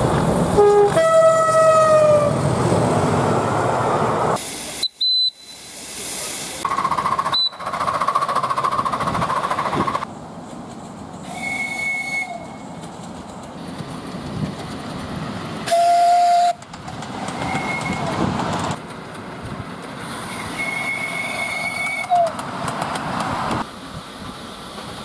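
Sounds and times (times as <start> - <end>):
small steam engines rumbling and clattering: 5.7 - 25.0
steam whistles: 11.2 - 12.7, 15.6 - 16.6, 17.4 - 18.1, 20.3 - 22.4.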